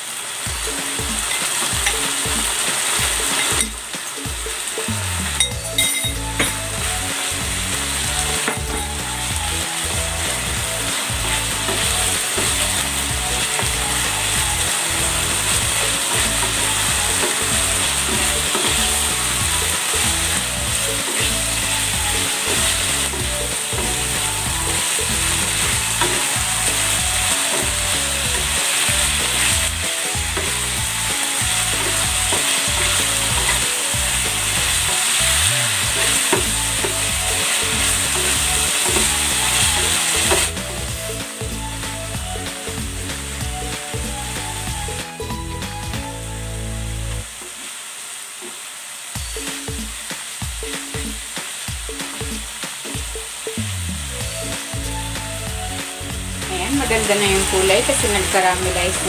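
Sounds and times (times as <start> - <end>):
food sizzling in a frying pan: 0.0 - 59.0.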